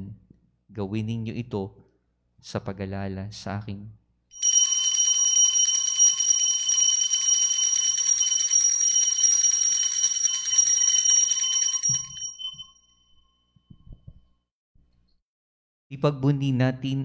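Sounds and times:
altar bells jingling: 4.3 - 13.3.

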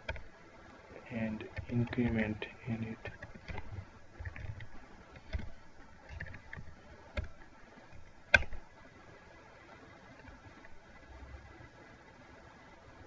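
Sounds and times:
keyboard keys clicking: 0.0 - 0.3, 1.5 - 8.7.

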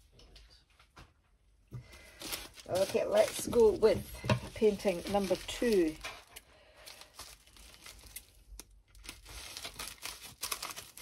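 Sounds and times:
plastic packaging crinkling: 1.8 - 11.0.

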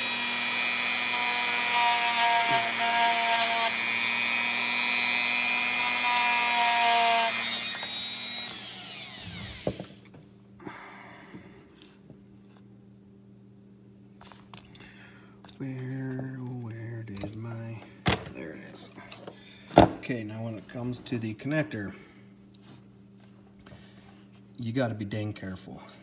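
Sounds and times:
rotary tool whining: 0.0 - 10.0.

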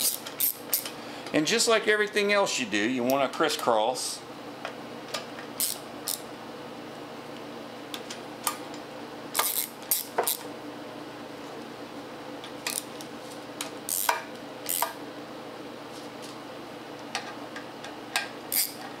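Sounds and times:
ratchet wrench clicking: 0.0 - 0.9, 5.6 - 6.2, 9.4 - 10.4, 13.9 - 14.1, 14.7 - 14.9, 18.5 - 18.8.

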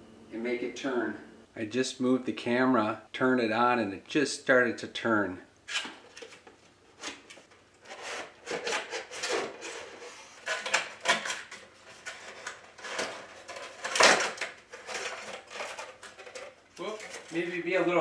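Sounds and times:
cardboard rustling and scraping: 5.7 - 17.5.

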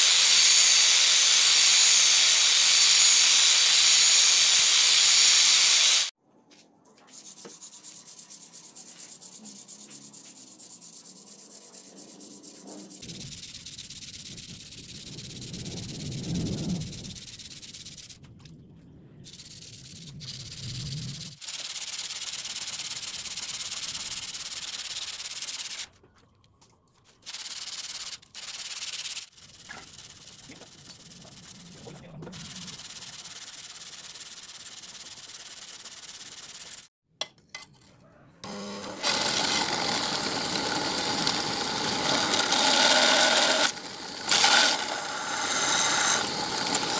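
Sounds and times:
angle grinder running: 0.0 - 6.1, 38.4 - 46.9
hand file rasping on steel: 7.2 - 13.1.

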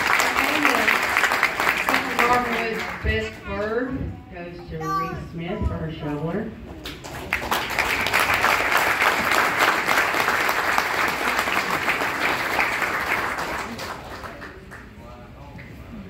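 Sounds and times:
audience applauding: 0.0 - 3.0, 6.8 - 15.0.

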